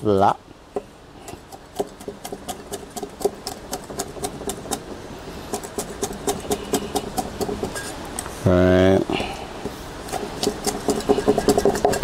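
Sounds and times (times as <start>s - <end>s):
cleaver chopping on wooden board: 1.6s - 4.9s, 5.5s - 7.8s, 10.1s - 12.0s.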